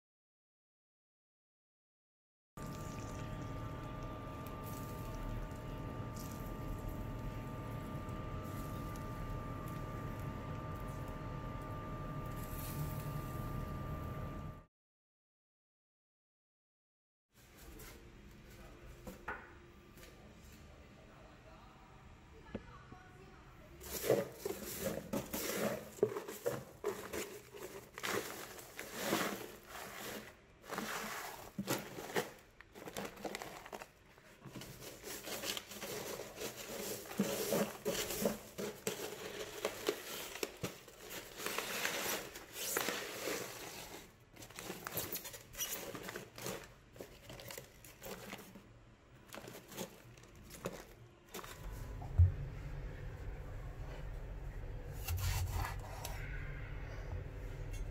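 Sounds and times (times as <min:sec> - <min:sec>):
crushed ice crunching: 0:02.6 - 0:11.1, 0:23.8 - 0:48.5
plastic bags crinkling: 0:23.9 - 0:51.7.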